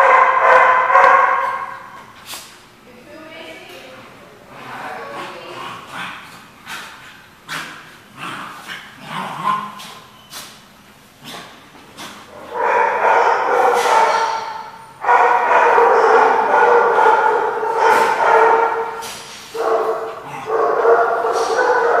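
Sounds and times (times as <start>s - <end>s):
dogs growling: 4.4s - 10.2s, 11.1s - 22.0s.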